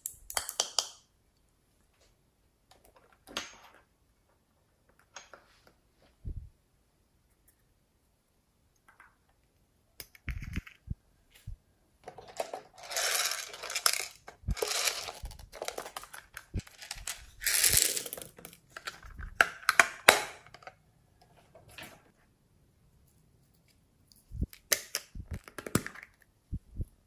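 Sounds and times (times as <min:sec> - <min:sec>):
plastic container rustling and scraping: 0:12.0 - 0:19.4.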